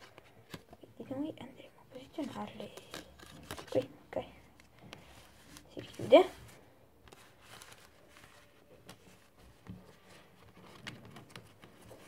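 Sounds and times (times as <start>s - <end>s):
playing cards tapping and rustling: 2.0s - 3.9s, 4.5s - 12.0s.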